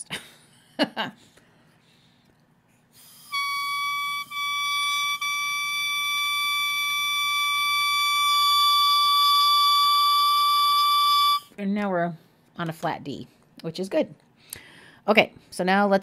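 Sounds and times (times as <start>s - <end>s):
oboe reed high note: 3.2s - 11.5s.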